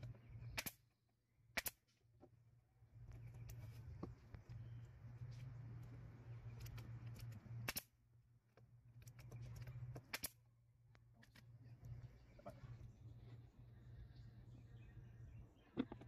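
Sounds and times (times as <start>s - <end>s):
nail gun shots: 0.5s - 0.8s, 1.5s - 1.9s, 7.6s - 7.9s
steady low hum: 2.2s - 16.0s.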